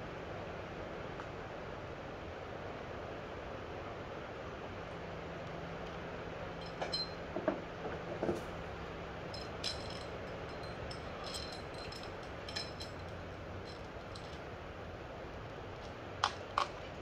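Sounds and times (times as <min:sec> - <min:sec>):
light metallic clinks and knocks: 0:06.6 - 0:07.5, 0:09.3 - 0:14.6.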